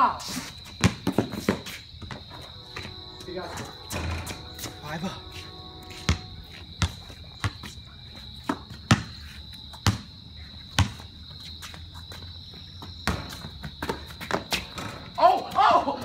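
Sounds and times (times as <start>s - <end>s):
crickets chirring: 0.0s - 16.0s
basketball bouncing on concrete: 0.6s - 2.9s, 6.0s - 7.8s, 8.4s - 11.1s, 12.2s - 15.6s.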